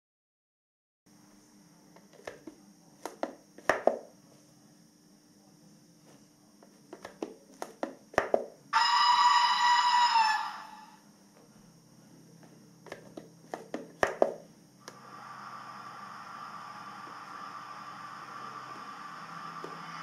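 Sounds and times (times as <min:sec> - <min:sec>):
steady hum: 0:01.1 - 0:20.0
model locomotive steam whistle: 0:08.8 - 0:11.0, 0:15.0 - 0:20.0.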